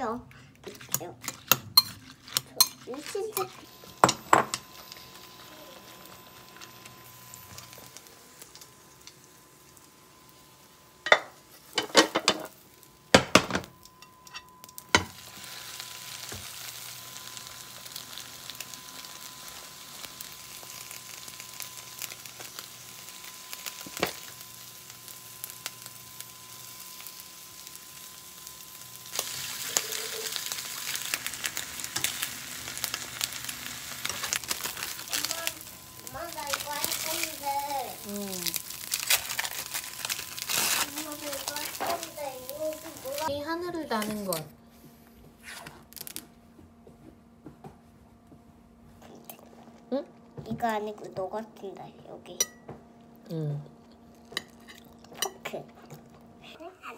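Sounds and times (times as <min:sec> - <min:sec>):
pancake sizzling in oil: 0:02.0 - 0:13.6, 0:14.3 - 0:44.0.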